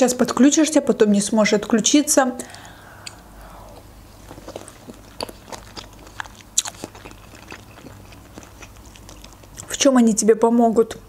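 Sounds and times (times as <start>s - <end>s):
wet mouth clicks: 2.5s - 9.7s
chewing food: 2.5s - 9.9s.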